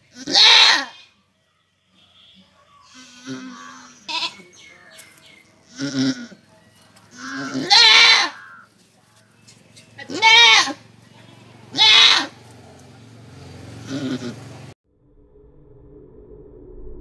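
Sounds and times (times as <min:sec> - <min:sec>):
goat bleating: 0:00.1 - 0:01.0, 0:02.9 - 0:04.5, 0:05.6 - 0:06.4, 0:07.1 - 0:08.7, 0:10.0 - 0:12.4, 0:13.8 - 0:14.5.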